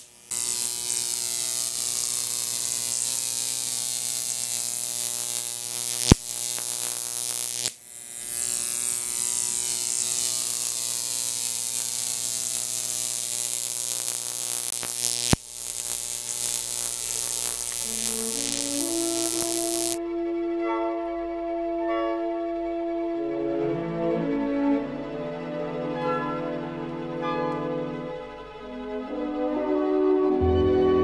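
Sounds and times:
electric arc buzzing and hissing: 0:00.0 - 0:20.0
sharp arc snaps: 0:00.0 - 0:20.0
music: 0:17.8 - 0:31.0.

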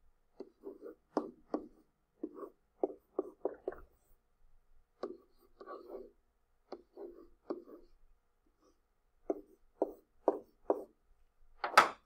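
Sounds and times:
stylus tapping on a tablet: 0:00.4 - 0:03.9, 0:05.0 - 0:06.0, 0:09.2 - 0:10.9.

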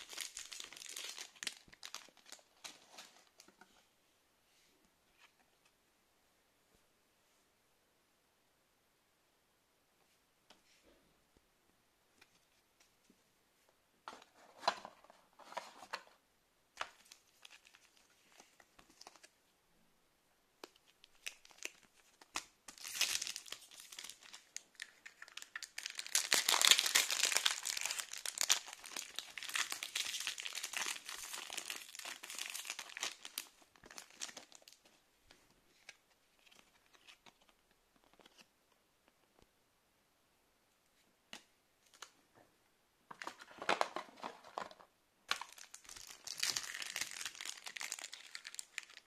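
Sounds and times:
foil wrapper crinkling and tearing: 0:00.0 - 0:02.4, 0:21.0 - 0:34.8, 0:45.3 - 0:49.0.

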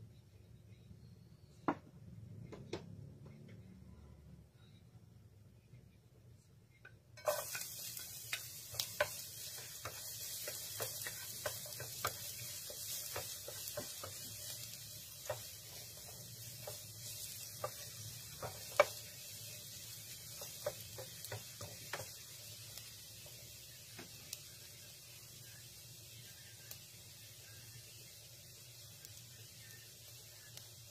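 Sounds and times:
wooden spatula tapping a pan: 0:07.2 - 0:22.5
garlic sizzling in hot oil: 0:07.2 - 0:30.9.

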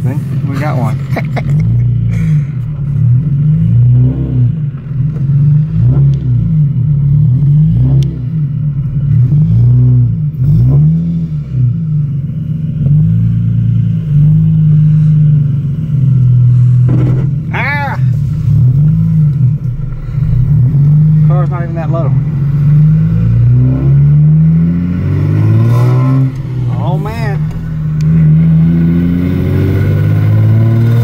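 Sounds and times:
car engine revving: 0:00.0 - 0:31.0.

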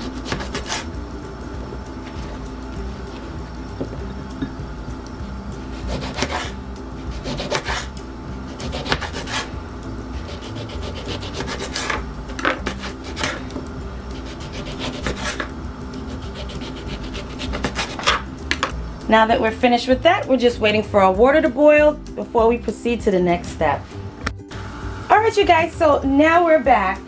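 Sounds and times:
knife slicing lemons on cutting board: 0:00.0 - 0:00.9, 0:05.8 - 0:07.9, 0:08.5 - 0:09.5, 0:10.3 - 0:13.6, 0:14.2 - 0:15.5, 0:16.1 - 0:18.7
steady low hum: 0:00.0 - 0:27.0.

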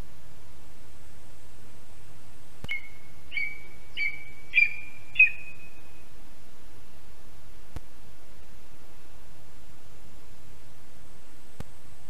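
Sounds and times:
steady hiss: 0:00.0 - 0:12.0
eagle piping calls: 0:02.7 - 0:05.8.

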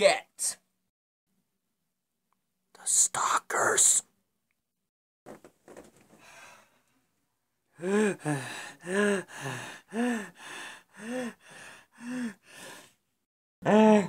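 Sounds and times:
man breathing heavily: 0:07.8 - 0:13.0.

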